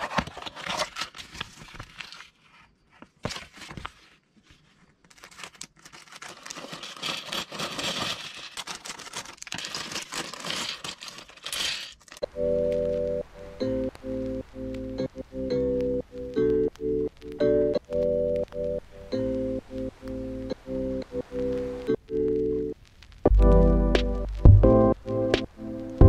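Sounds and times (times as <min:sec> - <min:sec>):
plastic bags crinkling: 0:00.0 - 0:02.5, 0:05.0 - 0:13.0
cardboard box scrapes and clicks: 0:05.2 - 0:12.2.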